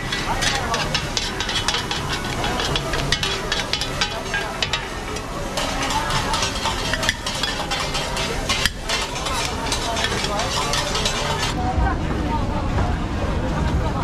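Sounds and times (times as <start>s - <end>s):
food sizzling: 0.0s - 11.6s
metal utensils clinking and scraping: 0.0s - 11.6s
faint crowd chatter: 0.0s - 14.0s.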